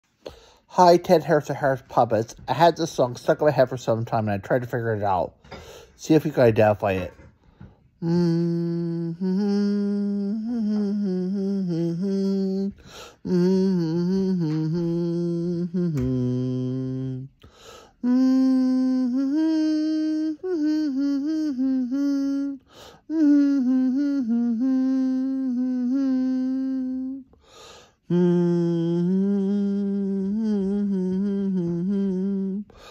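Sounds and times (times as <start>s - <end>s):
man humming a tune: 8.0s - 27.4s, 28.0s - 32.9s.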